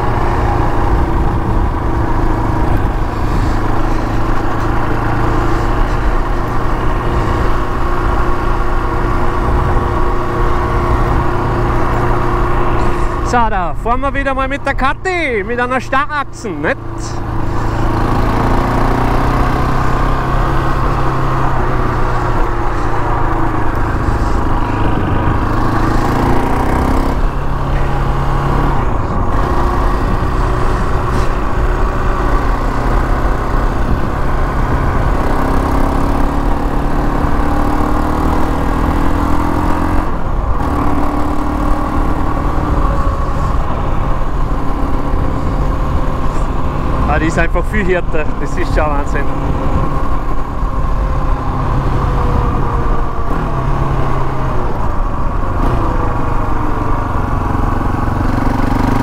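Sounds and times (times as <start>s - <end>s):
quad engine revving: 16.6s - 54.8s, 55.6s - 59.0s.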